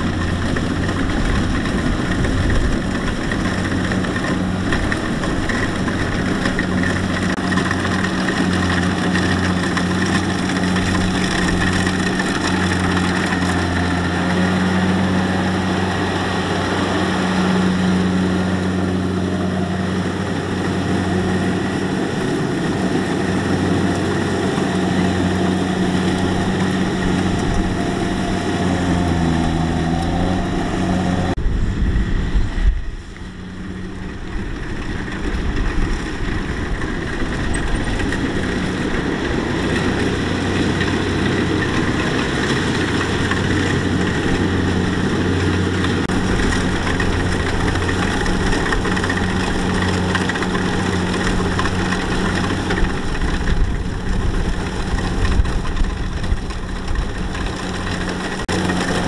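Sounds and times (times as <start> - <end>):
diesel engine running steadily: 0.0 - 59.0.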